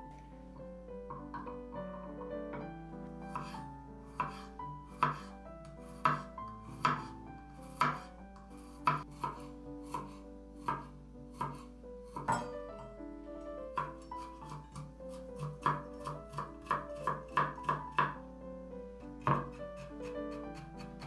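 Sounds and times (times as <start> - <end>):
background music: 0.0 - 21.0
knife slicing on wooden board: 3.3 - 5.3, 5.9 - 7.1, 7.7 - 12.3, 13.8 - 18.1.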